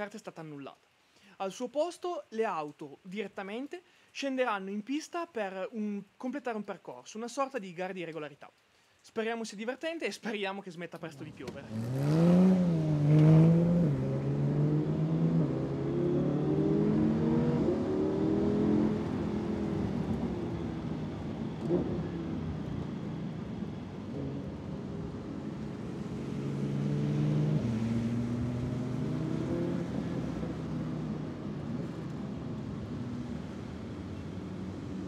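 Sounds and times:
sports car engine accelerating: 11.5 - 35.0.

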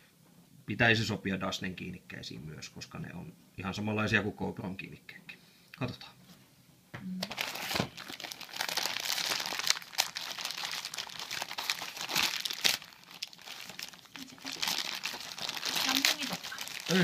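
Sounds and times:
plastic bag crinkling: 7.2 - 17.0.

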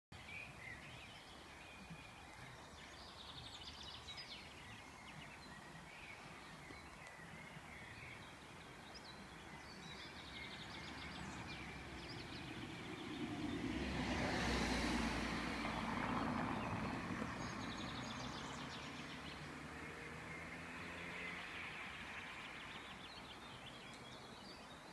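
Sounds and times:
small birds chirping: 0.2 - 24.9
car passing: 9.4 - 24.4.

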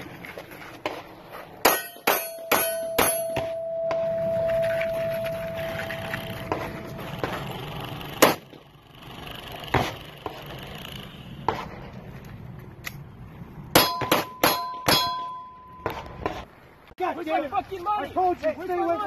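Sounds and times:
metallic ringing tone: 1.7 - 7.8, 13.8 - 15.9.

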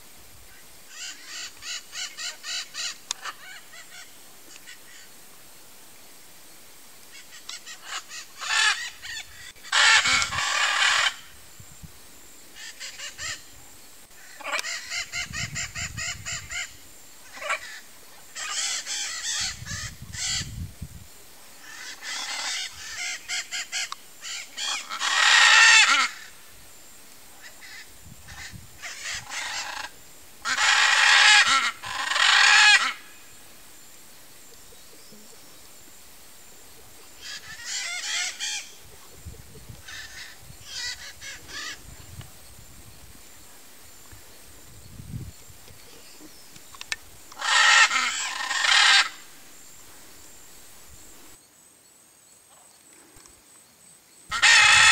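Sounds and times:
macaws squawking: 0.9 - 5.0, 7.2 - 11.3, 14.1 - 17.8, 18.4 - 20.6, 21.6 - 26.4, 27.4 - 33.2, 37.2 - 38.8, 39.8 - 41.8, 47.3 - 49.3, 54.3 - 54.9.

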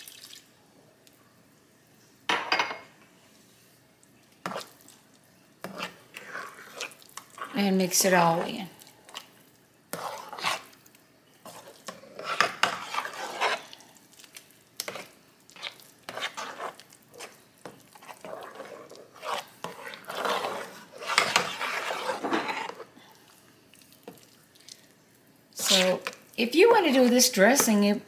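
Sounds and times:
squelching wet mixture: 3.6 - 27.9
metal spoon scraping a pan: 4.4 - 4.7, 5.6 - 9.2, 9.9 - 10.8, 11.4 - 13.8, 14.8 - 22.9, 25.6 - 26.1.

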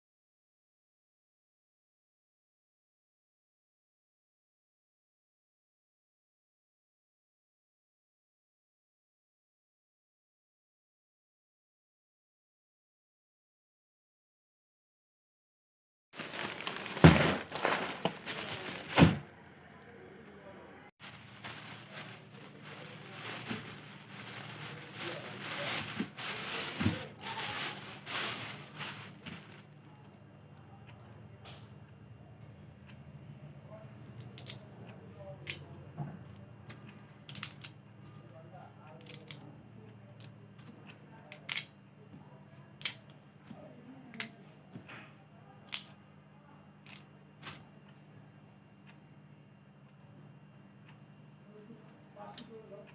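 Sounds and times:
plastic bags rustling: 16.2 - 19.3, 21.0 - 29.7
plastic wrapper crinkling: 16.2 - 19.3, 21.0 - 29.7
steady low hum: 16.2 - 30.8.

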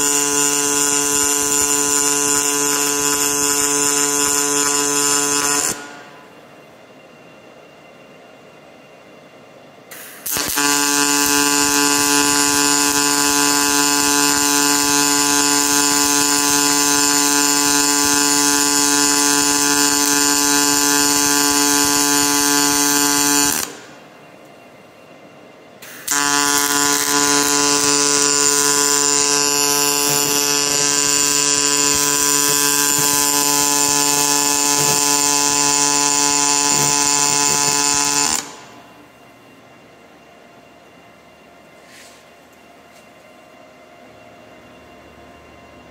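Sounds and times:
welding arc buzzing: 0.0 - 6.2, 9.9 - 24.1, 25.8 - 39.0.

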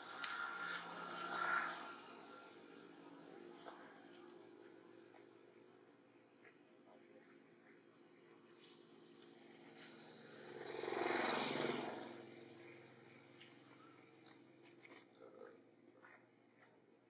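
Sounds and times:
vehicle passing by: 0.0 - 5.1, 8.6 - 14.1.

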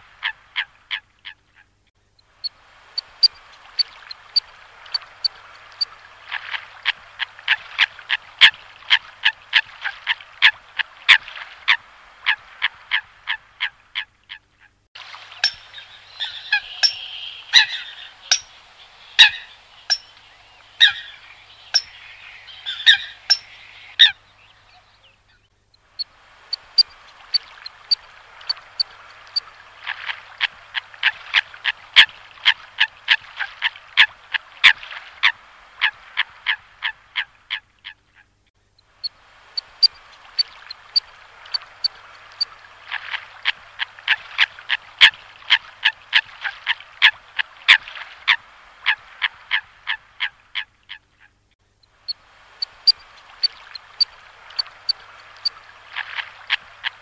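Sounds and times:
coots calling: 15.3 - 24.2.

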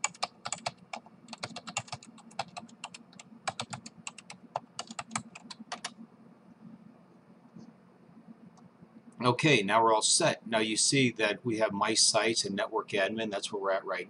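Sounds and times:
typing on computer keyboard: 0.0 - 6.0.

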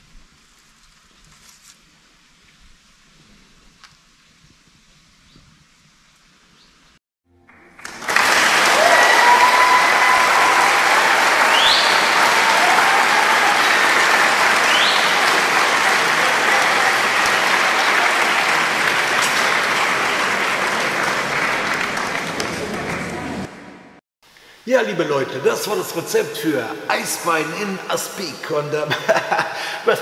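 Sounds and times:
audience applauding: 7.4 - 24.0
whistles: 8.3 - 16.1.

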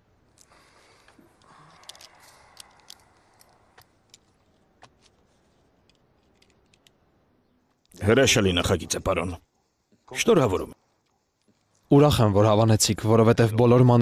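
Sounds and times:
light clicks and ticks: 0.3 - 8.0
paper rustling: 4.2 - 6.9.

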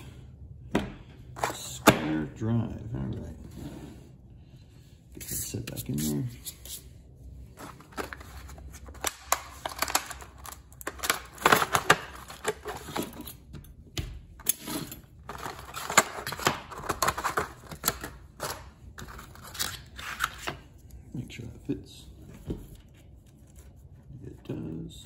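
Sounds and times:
plastic packaging rustling: 7.5 - 13.2, 15.1 - 20.4.

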